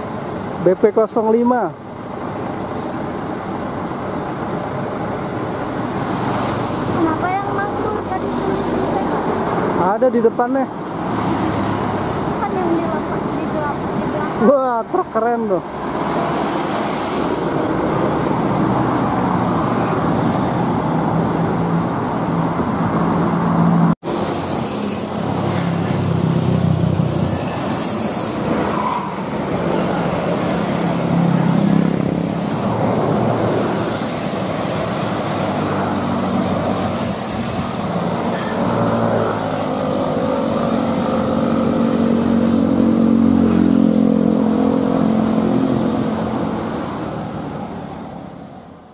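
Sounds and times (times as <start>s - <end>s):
heavy diesel vehicles passing: 0.0s - 48.9s
motorcycles passing: 4.5s - 48.7s
vehicle engine accelerating: 28.6s - 47.9s.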